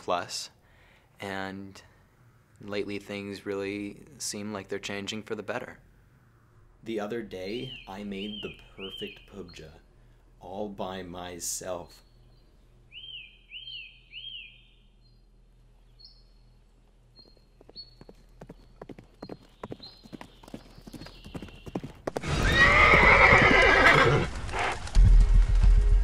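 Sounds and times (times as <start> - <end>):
horse hooves clip-clopping: 17.2 - 26.0
horse whinny: 22.2 - 24.7.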